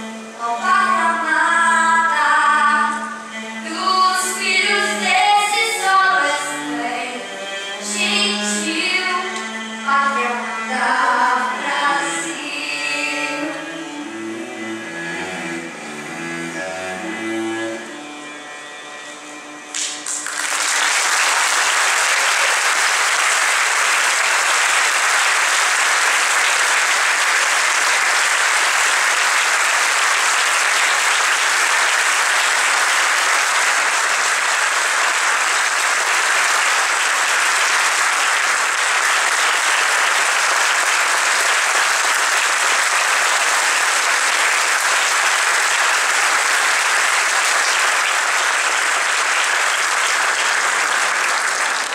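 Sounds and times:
audience applauding: 0:19.7 - 0:51.9.

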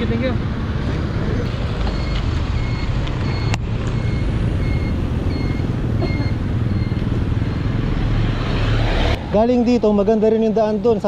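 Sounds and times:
low rumble of traffic: 0:00.0 - 0:11.0
wind: 0:00.0 - 0:11.0
short electronic beeps: 0:01.9 - 0:07.8.

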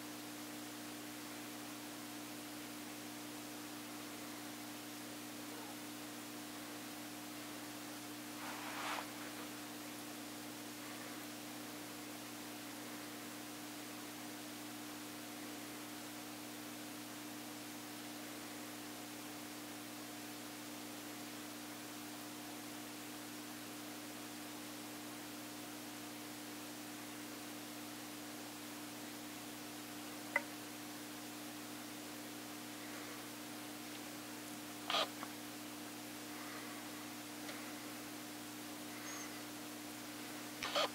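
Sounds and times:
electrical hum: 0:00.0 - 0:40.9
background hiss: 0:04.1 - 0:15.9, 0:28.4 - 0:40.9.

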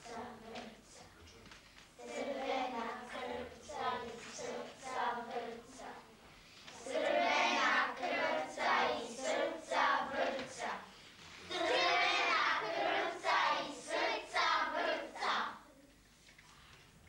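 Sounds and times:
children singing in unison: 0:00.0 - 0:01.0, 0:02.0 - 0:06.1, 0:06.7 - 0:10.9, 0:11.5 - 0:15.7.

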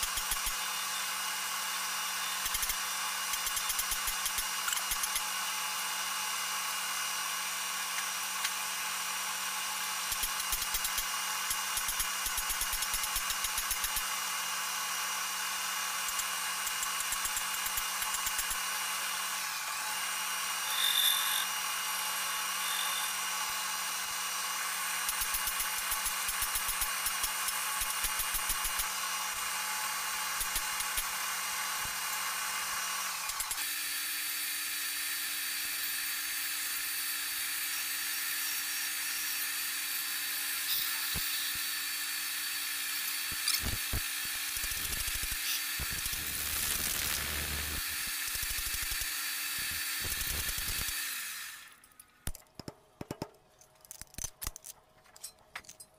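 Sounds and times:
lathe motor hum: 0:45.8 - 0:48.0.

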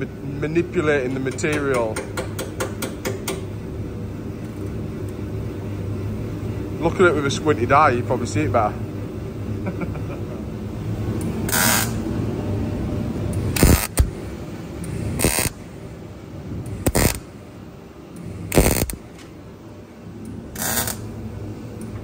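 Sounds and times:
low steady hum: 0:00.0 - 0:22.0
short bursts of welding: 0:11.5 - 0:12.0, 0:13.6 - 0:14.1, 0:15.2 - 0:15.6, 0:16.8 - 0:17.2, 0:18.5 - 0:19.0, 0:20.6 - 0:21.0.

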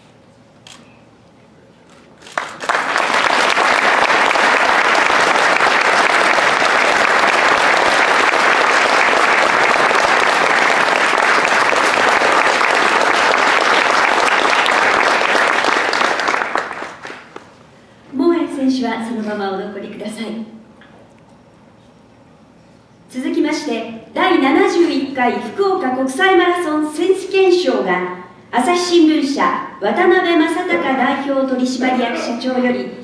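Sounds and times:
audience applauding: 0:02.2 - 0:17.5.

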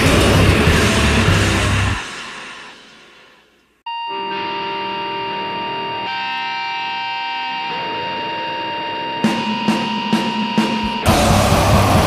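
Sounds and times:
drum hits: 0:00.0 - 0:02.8.

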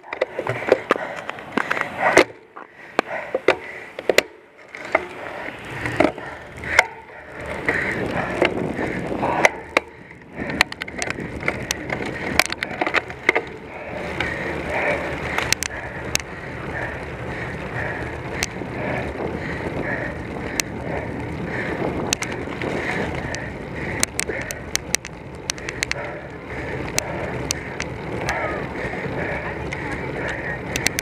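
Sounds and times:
bicycle clicks and knocks: 0:00.0 - 0:31.0
bicycle tyres rumbling on road: 0:00.0 - 0:31.0.

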